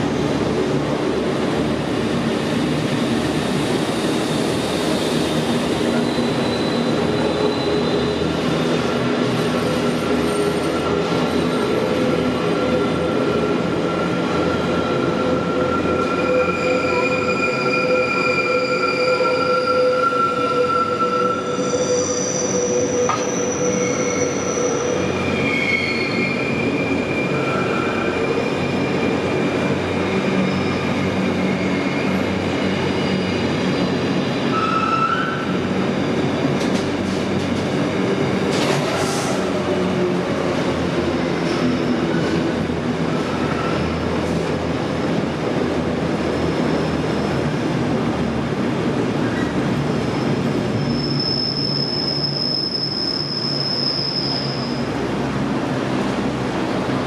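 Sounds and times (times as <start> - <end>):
train wheels squealing: 3.4 - 37.7, 49.2 - 55.0.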